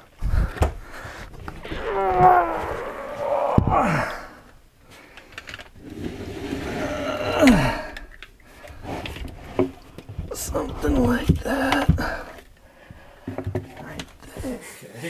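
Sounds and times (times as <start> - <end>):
man grunting and groaning: 1.6 - 4.4, 6.8 - 7.9.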